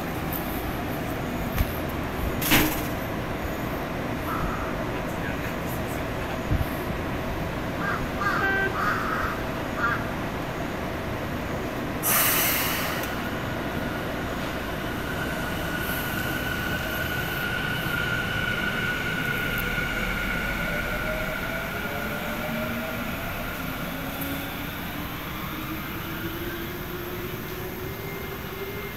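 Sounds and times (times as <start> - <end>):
train rumbling past: 0.0 - 28.9
air hiss: 12.0 - 13.3.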